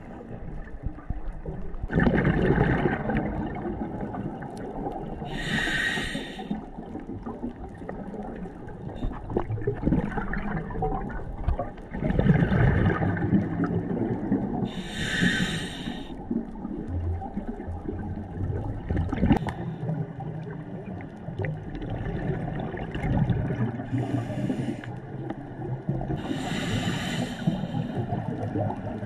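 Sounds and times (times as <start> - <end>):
exhaled bubbles gurgling: 0.0 - 29.0
hissing regulator inhalations: 5.3 - 6.6, 14.7 - 16.2, 23.9 - 25.0, 26.2 - 28.0.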